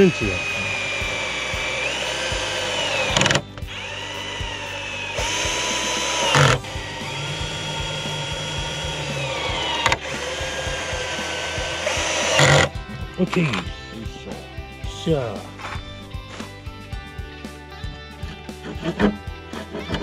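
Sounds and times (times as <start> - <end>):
electric driver motor whine: 0.0 - 13.9.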